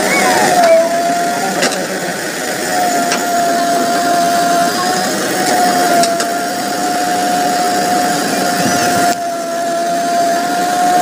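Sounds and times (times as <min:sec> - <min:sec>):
diesel engine under load: 0:00.0 - 0:11.0
steady high whine: 0:00.0 - 0:11.0.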